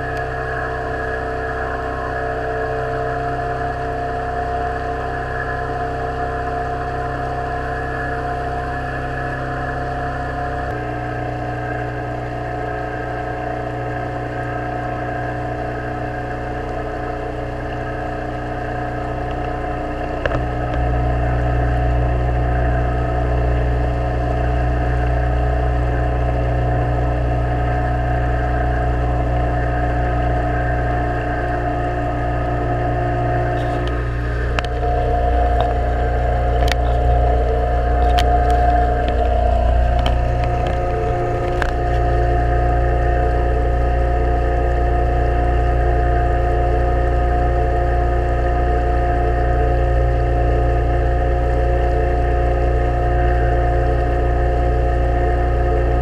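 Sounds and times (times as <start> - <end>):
outboard motor running: 0.0 - 56.0.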